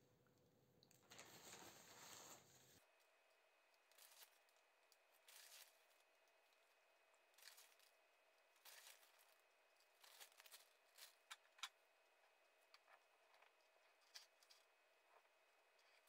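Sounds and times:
spoon scraping and rustling: 3.8 - 6.1, 7.3 - 11.8, 12.7 - 16.0.

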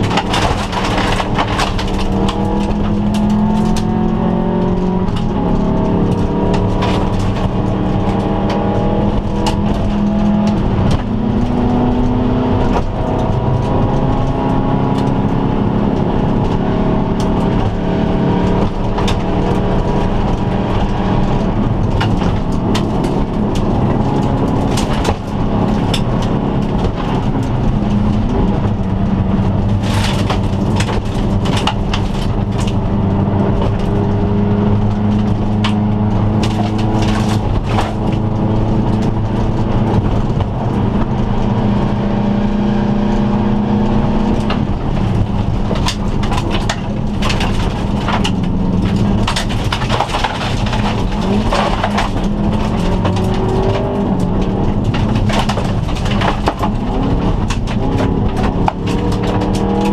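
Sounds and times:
gravel hitting car body: 0.0 - 3.8, 33.5 - 40.8, 44.4 - 59.9
car engine revving: 0.0 - 59.9.

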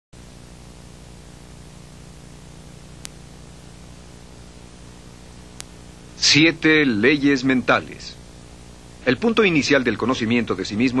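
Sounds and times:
low mains hum: 0.2 - 11.0
tape hiss: 0.2 - 11.0.

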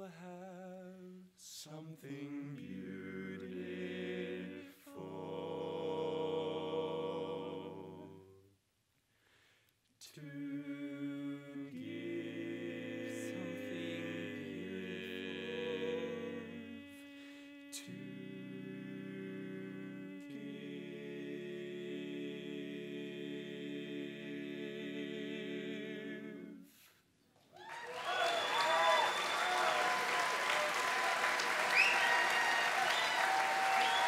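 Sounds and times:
men singing a cappella chords: 0.0 - 8.4, 10.1 - 26.9.

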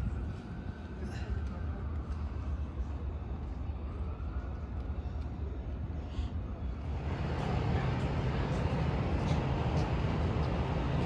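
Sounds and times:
low outdoor rumble: 4.9 - 11.0.

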